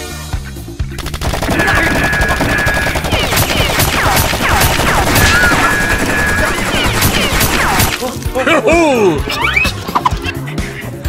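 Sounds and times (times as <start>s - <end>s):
machine-gun fire: 1.0s - 8.3s.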